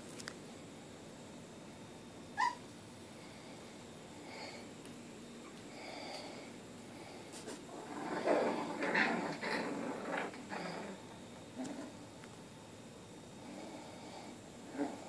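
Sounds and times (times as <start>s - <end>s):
puppies making rough vocal noises: 7.7s - 12.0s, 14.6s - 15.0s.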